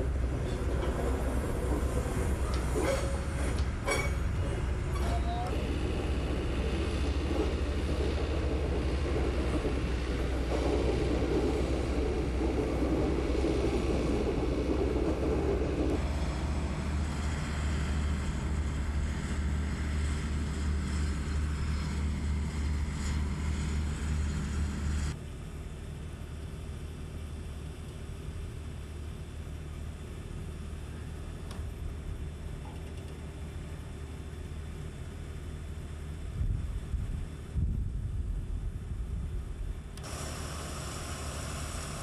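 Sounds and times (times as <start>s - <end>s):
locomotive low rumble: 0.0s - 42.0s.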